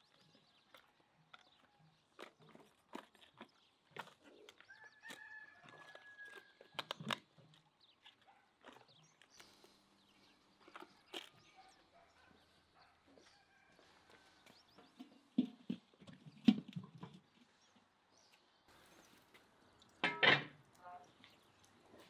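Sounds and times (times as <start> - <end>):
rooster crowing: 4.7 - 6.6, 13.2 - 14.5.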